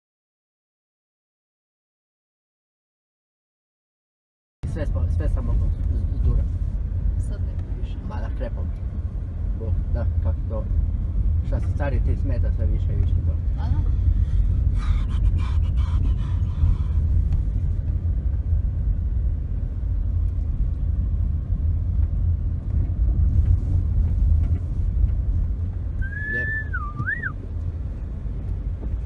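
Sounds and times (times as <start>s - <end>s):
car road and wind noise: 4.6s - 29.0s
short whistle: 26.0s - 27.4s.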